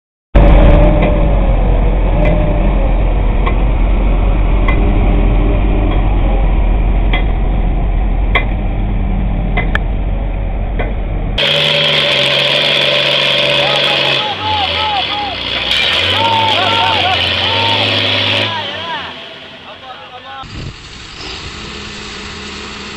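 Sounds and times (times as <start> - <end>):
wavering whine: 0.4 - 14.4
diesel engine rumbling under load: 0.4 - 22.9.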